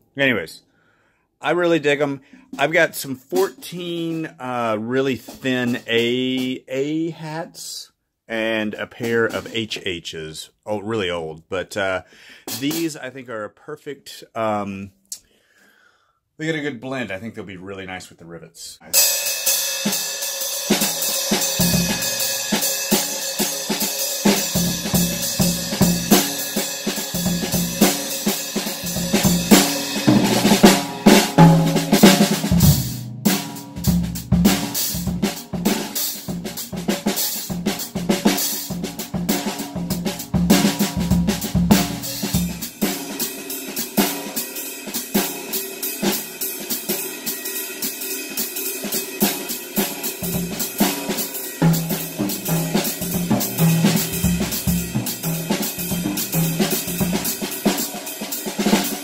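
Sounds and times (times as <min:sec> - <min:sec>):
drum kit played with sticks: 0:02.4 - 0:07.4, 0:08.3 - 0:09.8, 0:12.5 - 0:13.1, 0:18.9 - 0:59.0
hi-hat cymbals: 0:19.0 - 0:59.0.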